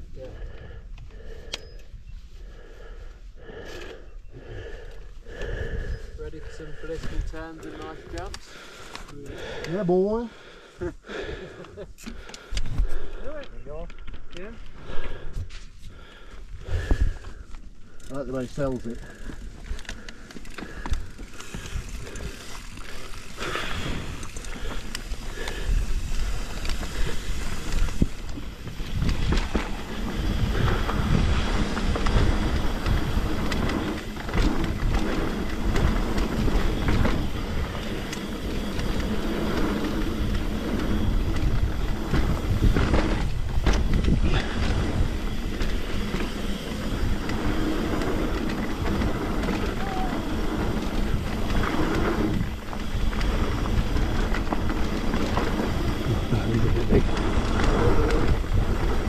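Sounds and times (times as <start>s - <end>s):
wind buffeting microphone: 0.0s - 8.3s, 14.8s - 18.0s, 18.9s - 59.0s
tyre noise on dirt: 18.7s - 59.0s.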